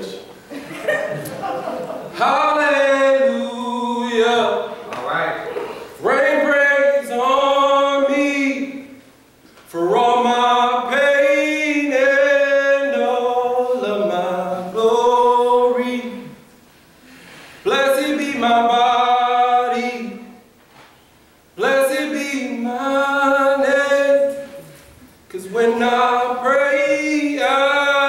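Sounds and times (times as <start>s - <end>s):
man singing unaccompanied: 2.1s - 4.8s, 6.0s - 9.0s, 9.7s - 16.5s, 17.6s - 20.5s, 21.6s - 28.0s.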